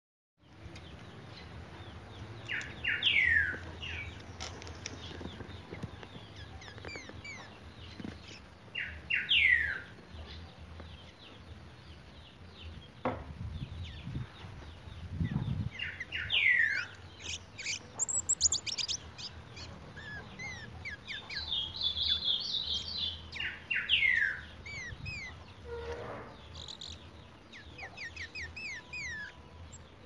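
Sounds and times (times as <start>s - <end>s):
faint high chirps: 15.2s - 25.9s, 26.5s - 30.0s.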